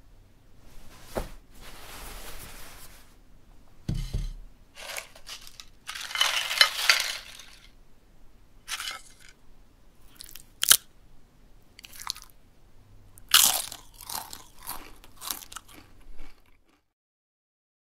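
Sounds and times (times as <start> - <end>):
chip crunching: 4.8 - 7.7, 8.7 - 9.4, 10.1 - 10.9, 11.8 - 12.4, 13.2 - 16.8
chip snapping: 10.2 - 10.9.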